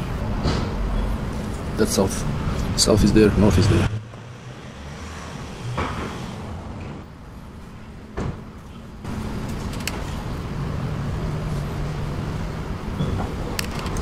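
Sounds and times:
low rumble: 0:02.2 - 0:07.1.

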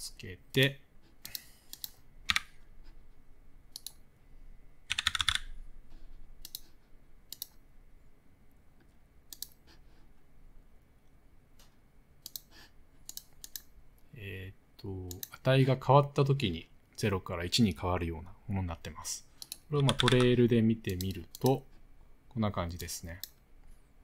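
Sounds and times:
keyboard clicks: 0:01.2 - 0:02.6, 0:03.7 - 0:04.0, 0:04.9 - 0:05.6, 0:06.4 - 0:06.7, 0:07.3 - 0:07.6, 0:09.3 - 0:09.6, 0:11.6 - 0:12.5, 0:13.1 - 0:13.7, 0:19.4 - 0:21.6
keyboard typing: 0:01.2 - 0:02.6, 0:04.9 - 0:05.6, 0:06.4 - 0:07.6, 0:19.4 - 0:21.6.

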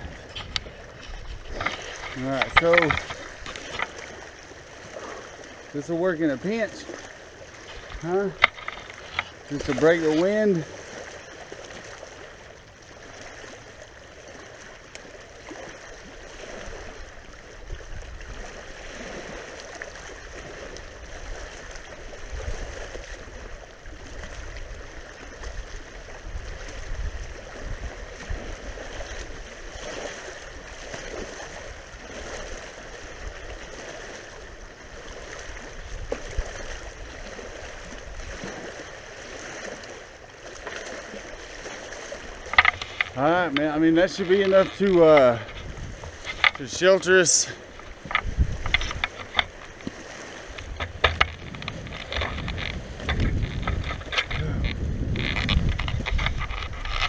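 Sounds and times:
branches rustling: 0:00.0 - 0:05.8, 0:06.6 - 0:11.0, 0:40.4 - 0:57.0
wind buffeting microphone: 0:00.0 - 0:10.6, 0:16.1 - 0:38.7, 0:41.3 - 0:57.0.

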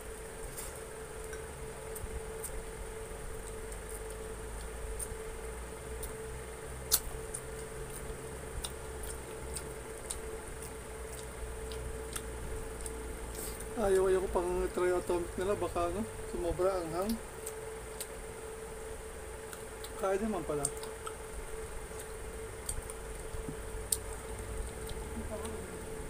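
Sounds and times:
steady hum: 0:00.0 - 0:26.0
wet chewing smacks: 0:21.9 - 0:25.6.

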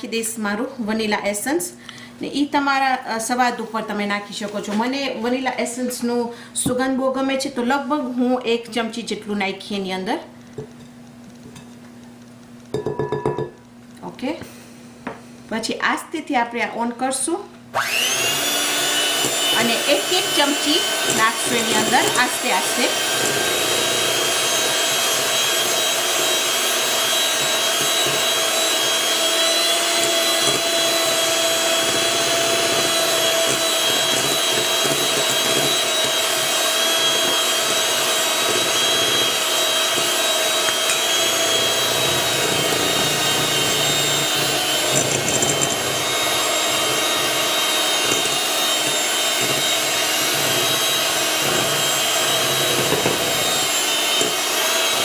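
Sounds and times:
electric hand mixer whirring: 0:17.7 - 0:55.0.

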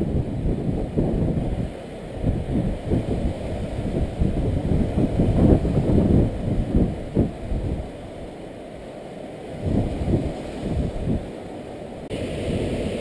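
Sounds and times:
wind buffeting microphone: 0:00.0 - 0:08.6, 0:09.3 - 0:13.0.

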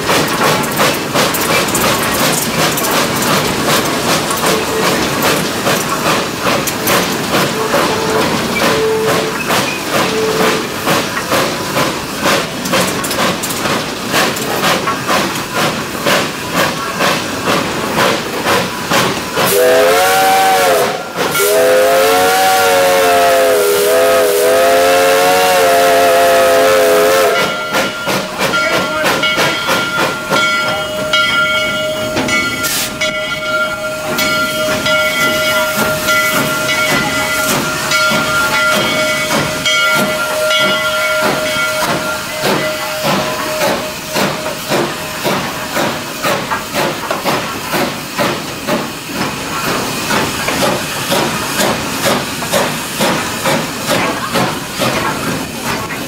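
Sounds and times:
steam hissing: 0:00.0 - 0:56.0
steam locomotive chuffing: 0:00.0 - 0:56.0
steam whistle blowing: 0:07.5 - 0:10.8, 0:19.5 - 0:27.7, 0:35.6 - 0:45.2.

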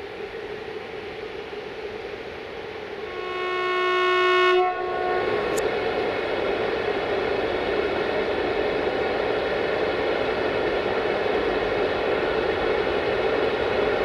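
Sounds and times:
train rumble: 0:00.0 - 0:14.0
locomotive horn: 0:03.0 - 0:06.0.

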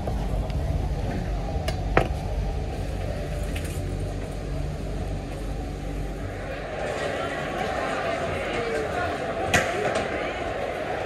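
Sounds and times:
low background rumble: 0:00.0 - 0:06.8.

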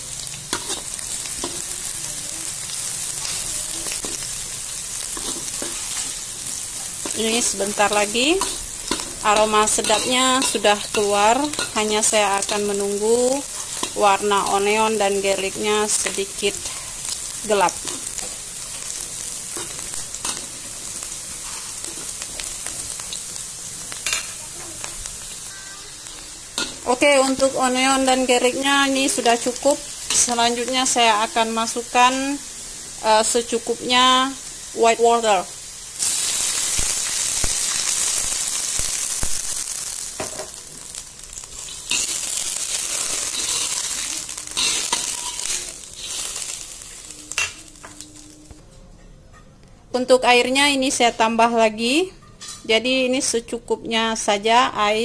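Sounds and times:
onion and garlic sizzling in oil: 0:00.0 - 0:48.6
spatula scraping a wok: 0:00.5 - 0:01.9, 0:05.0 - 0:12.8, 0:13.4 - 0:14.0, 0:18.9 - 0:22.6, 0:41.5 - 0:47.5
metal spatula scraping pan: 0:41.6 - 0:46.4.

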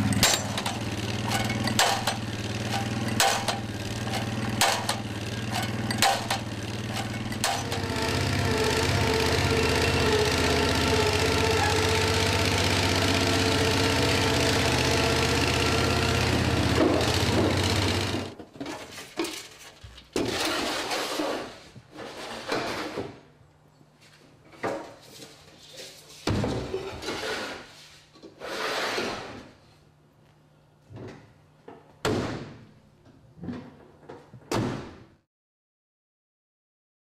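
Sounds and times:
drilling rig engine running: 0:00.0 - 0:18.4.

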